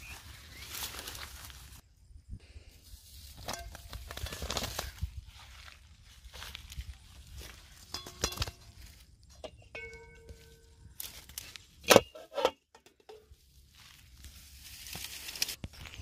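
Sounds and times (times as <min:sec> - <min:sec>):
dry brush rustling: 0:00.0 - 0:01.8, 0:13.4 - 0:16.0
metal lid clanking on metal pan: 0:07.9 - 0:08.6, 0:11.9 - 0:13.2.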